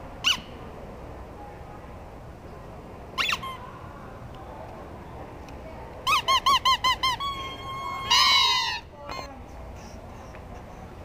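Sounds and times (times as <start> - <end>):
squeaking toys: 3.2 - 3.6, 6.0 - 9.3.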